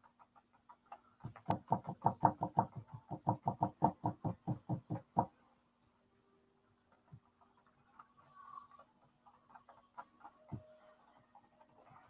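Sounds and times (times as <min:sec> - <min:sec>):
paintbrush tapping on canvas: 0:01.2 - 0:05.3.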